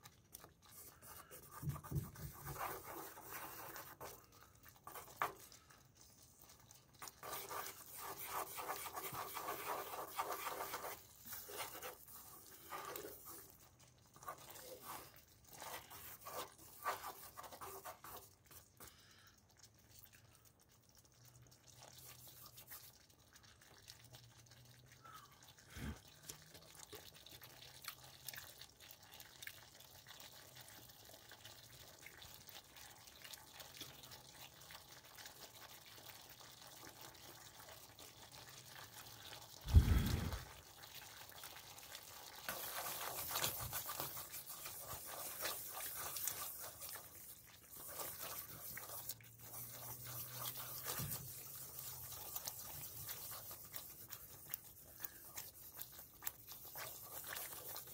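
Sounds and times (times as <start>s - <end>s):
wooden stick stirring and scraping: 0.0s - 24.2s, 36.7s - 57.9s
tomato sauce bubbling: 0.0s - 57.9s.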